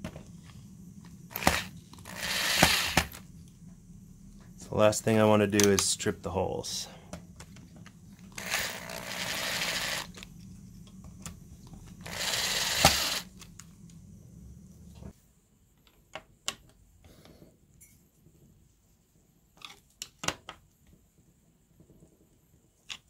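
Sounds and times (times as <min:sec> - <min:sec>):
cordless drill driving screw: 0:01.3 - 0:03.2, 0:08.4 - 0:10.2, 0:12.0 - 0:13.3
sharp drill click: 0:01.3 - 0:03.2, 0:08.4 - 0:10.2, 0:12.0 - 0:13.3.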